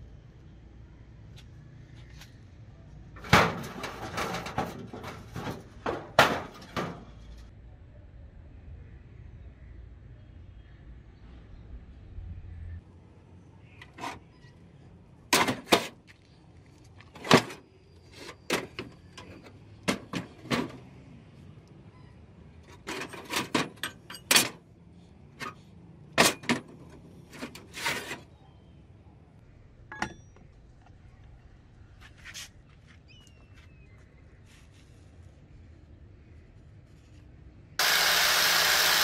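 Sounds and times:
scrap iron clanking in a crate: 0:03.2 - 0:07.2.

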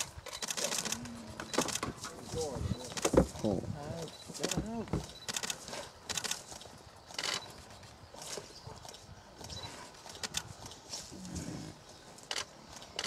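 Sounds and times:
camera shutters clicking: 0:00.0 - 0:02.0, 0:04.4 - 0:07.5, 0:10.1 - 0:10.5, 0:12.2 - 0:13.0.

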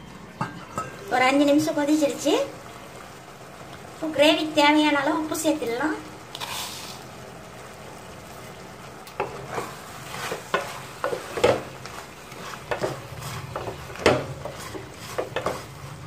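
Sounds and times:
gravy sizzling: 0:00.0 - 0:16.0
wooden spatula scraping pot: 0:06.3 - 0:07.0, 0:09.2 - 0:16.0.

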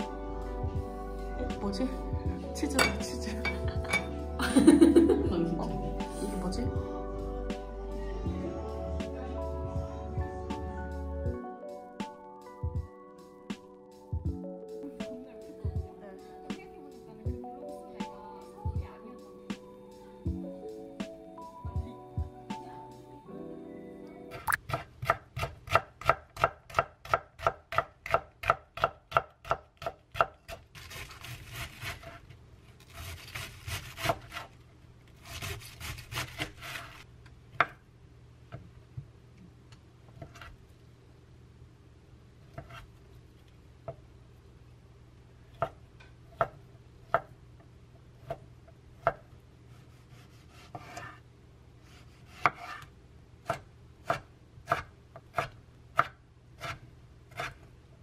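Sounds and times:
knife chopping on wooden board: 0:24.6 - 0:32.2, 0:49.8 - 0:51.2, 0:52.0 - 0:57.6.

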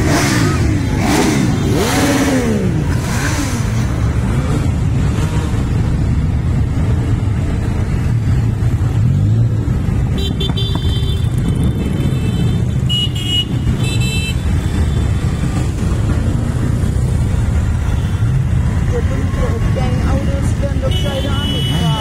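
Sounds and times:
motorcycle engines rumbling: 0:00.0 - 0:22.0
horns beeping: 0:10.1 - 0:15.6, 0:20.6 - 0:22.0.

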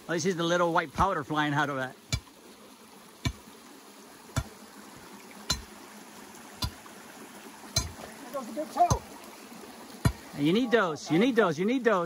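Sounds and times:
creek running: 0:00.0 - 0:12.0
steel bar striking rocky soil: 0:02.1 - 0:02.3, 0:03.2 - 0:03.4, 0:05.5 - 0:05.7, 0:06.6 - 0:06.8, 0:07.7 - 0:08.1.

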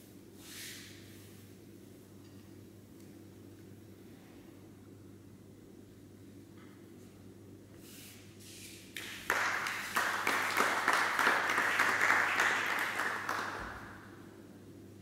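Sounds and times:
group of people clapping: 0:09.0 - 0:14.2.

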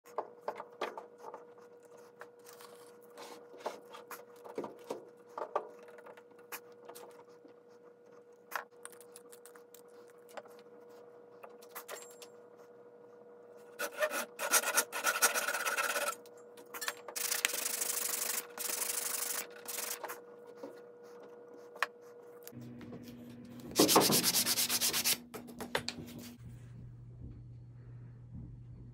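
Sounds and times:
hand saw rasping: 0:13.8 - 0:16.2.

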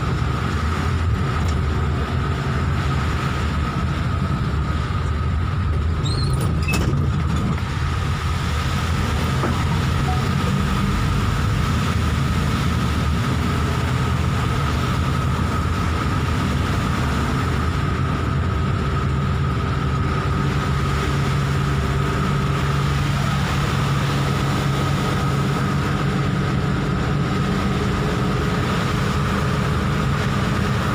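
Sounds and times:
road noise on wet road: 0:00.0 - 0:30.9
vehicle engine hum: 0:00.0 - 0:30.9
high whine: 0:09.0 - 0:11.2.

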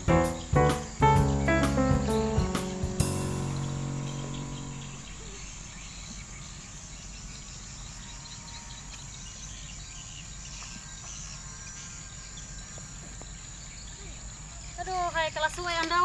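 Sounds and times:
insects chirring: 0:00.0 - 0:05.8.

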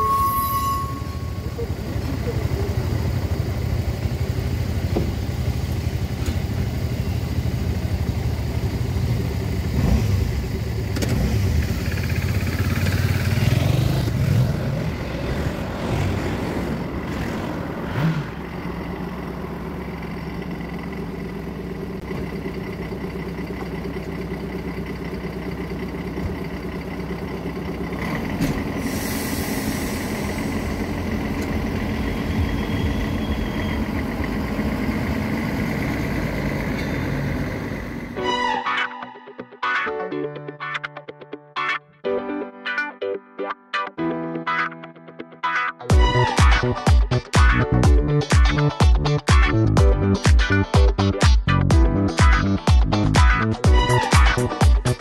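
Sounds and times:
railbus diesel engine running: 0:00.0 - 0:39.8, 0:45.9 - 0:55.0
engine knock: 0:02.1 - 0:14.1
cars passing over crossing: 0:09.6 - 0:22.2.

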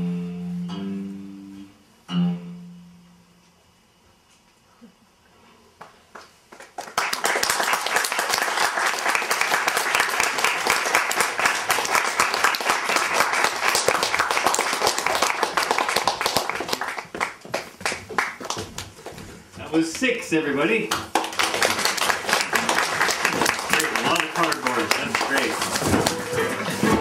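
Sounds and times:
audience applause: 0:06.5 - 0:18.8, 0:21.0 - 0:27.0.

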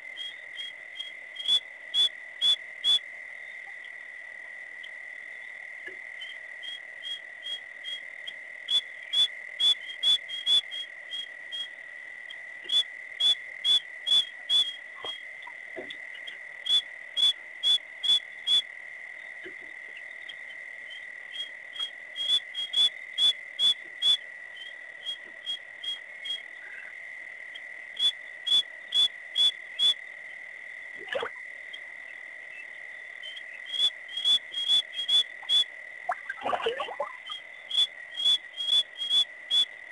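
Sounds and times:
sharp whistle-like animal pips: 0:12.7 - 0:15.2, 0:33.3 - 0:36.3, 0:37.3 - 0:39.7.

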